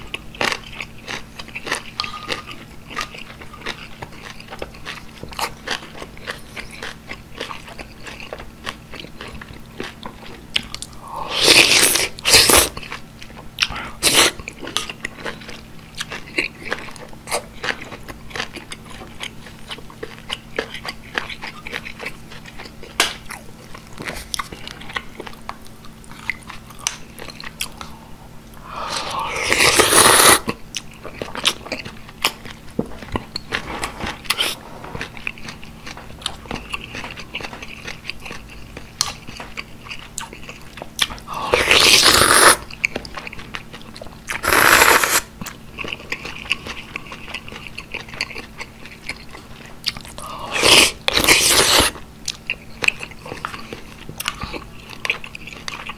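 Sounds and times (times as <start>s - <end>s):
wet chewing and mouth clicks: 0.0s - 55.9s
loud slurping of broth: 11.1s - 12.7s, 28.6s - 30.5s, 41.4s - 42.6s, 44.4s - 45.3s, 50.3s - 51.9s.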